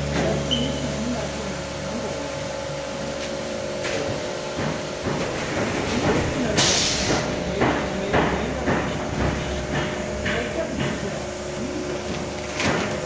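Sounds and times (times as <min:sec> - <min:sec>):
machinery humming: 0:00.0 - 0:13.0
machine clunks and knocks: 0:03.8 - 0:13.0
loud pneumatic hiss: 0:06.6 - 0:07.3.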